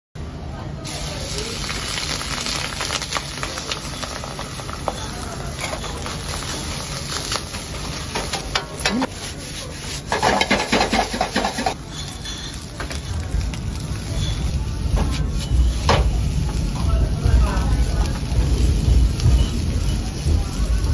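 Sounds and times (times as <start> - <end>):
low rumble of gas burner: 0.2 - 20.9
egg and rice sizzling in a wok: 0.8 - 20.9
metal ladle scraping a wok: 8.1 - 13.2.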